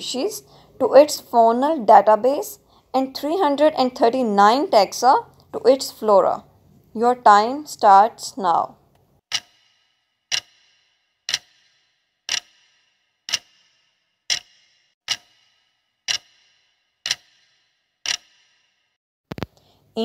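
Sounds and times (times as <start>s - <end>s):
clock ticking: 9.3s - 18.6s.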